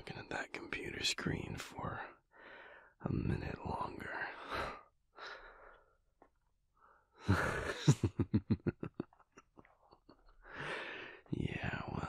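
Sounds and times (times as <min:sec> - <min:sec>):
man's short breathy laugh: 0:07.2 - 0:10.9
man breathing out: 0:10.4 - 0:11.3.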